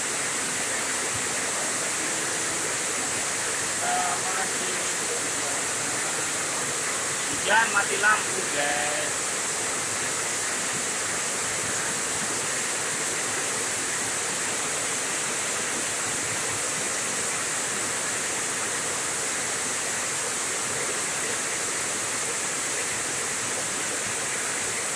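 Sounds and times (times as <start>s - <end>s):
heavy rain pouring: 0.0s - 19.1s.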